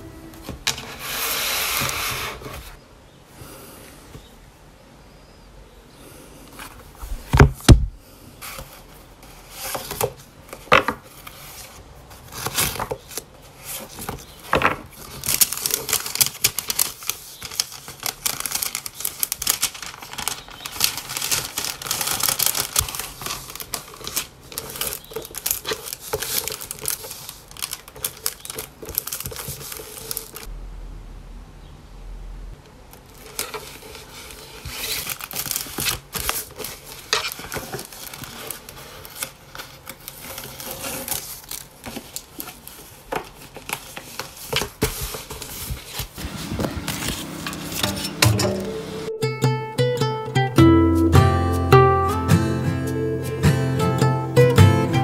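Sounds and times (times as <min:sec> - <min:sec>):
paper and plastic rustling: 0:00.0 - 0:02.8, 0:06.5 - 0:30.5, 0:32.9 - 0:48.7.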